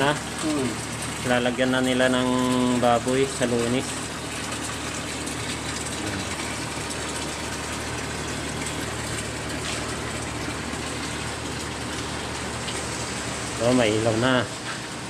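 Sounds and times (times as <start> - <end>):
motor humming: 0.0 - 15.0.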